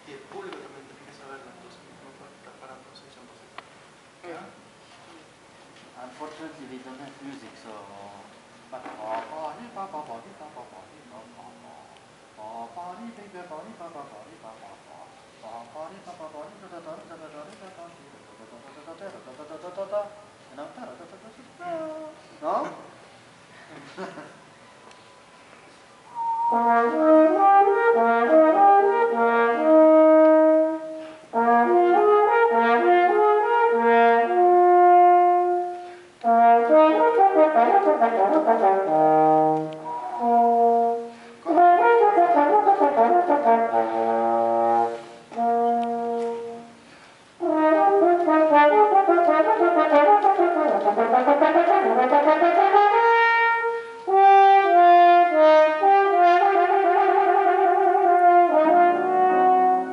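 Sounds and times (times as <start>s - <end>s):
solo french horn: 26.1s - 59.9s.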